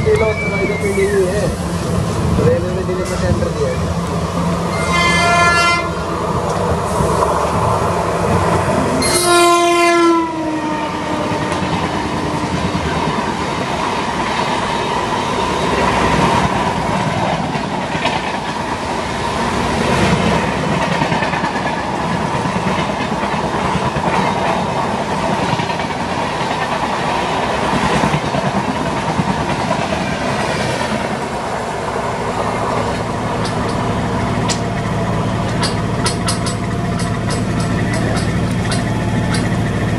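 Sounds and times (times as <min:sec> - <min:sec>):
train coaches rumbling and clattering: 0:00.0 - 0:39.9
train horn blast: 0:04.7 - 0:06.0, 0:09.0 - 0:12.6.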